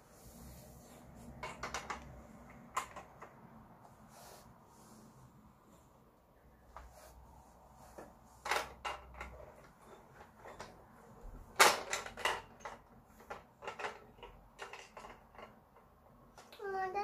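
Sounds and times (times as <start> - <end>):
plastic toy clicks and knocks: 1.4 - 3.3, 8.4 - 10.8, 11.5 - 16.6.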